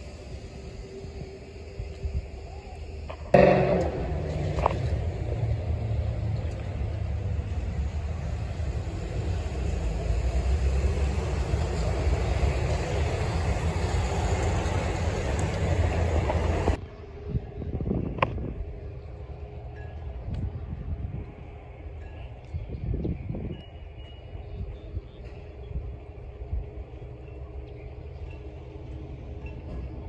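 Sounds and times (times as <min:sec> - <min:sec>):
low traffic rumble: 0:00.0 - 0:30.0
cars and bus driving past: 0:03.3 - 0:17.4, 0:23.3 - 0:30.0.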